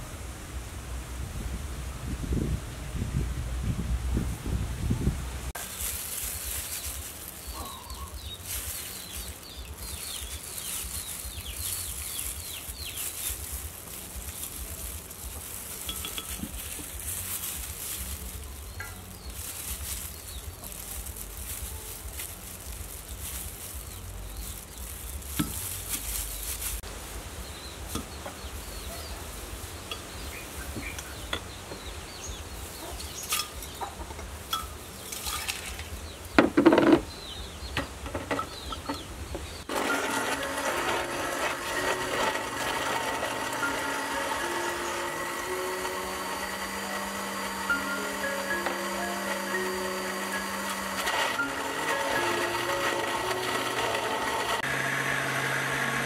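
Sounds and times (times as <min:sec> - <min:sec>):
background music: 0:39.7 - 0:54.7.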